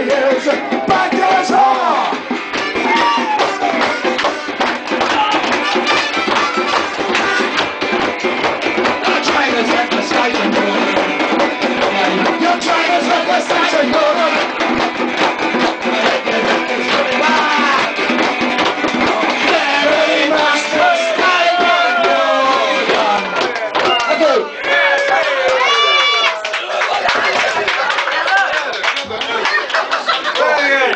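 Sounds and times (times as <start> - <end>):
man singing into a microphone: 0.0 - 2.2, 9.0 - 11.2, 11.8 - 14.6, 15.8 - 17.9
hand drum beat: 0.0 - 24.0
guitar: 0.0 - 26.5.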